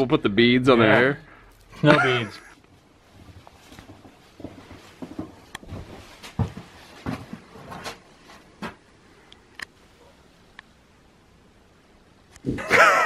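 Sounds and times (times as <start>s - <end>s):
footsteps: 2.4s - 8.9s
clothing rustle: 2.7s - 8.9s.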